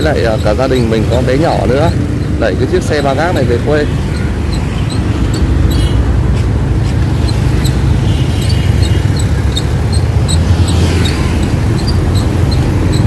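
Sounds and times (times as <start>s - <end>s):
cart wheel squeaking: 0.0s - 13.0s
road traffic rumble: 0.0s - 13.0s.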